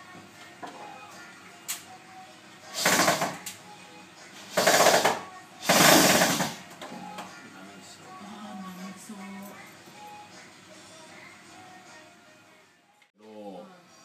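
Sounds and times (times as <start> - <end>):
electric drill bursts: 2.7 - 3.4, 4.5 - 6.6.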